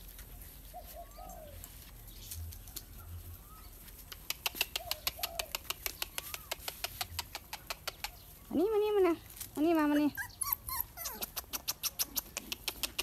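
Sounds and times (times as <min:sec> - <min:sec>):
puppies whimpering: 0:10.0 - 0:12.4.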